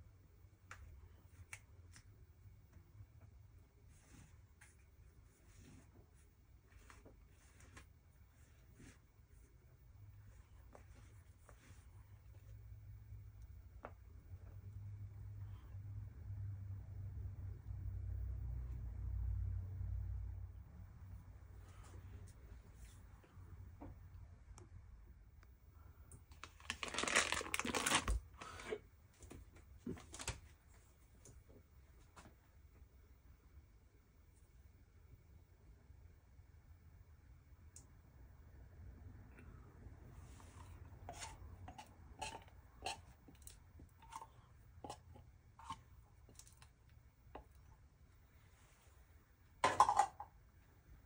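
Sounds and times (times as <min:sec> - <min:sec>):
foil wrapper crinkling: 0:26.3 - 0:28.7.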